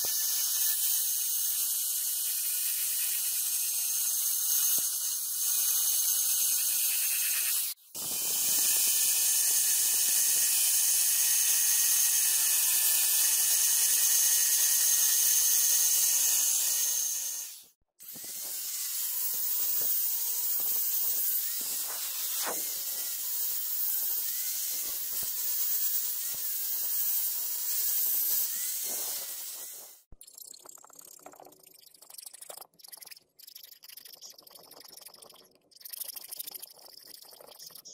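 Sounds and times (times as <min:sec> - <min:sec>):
rotary tool grinding steel: 0:00.0 - 0:30.1.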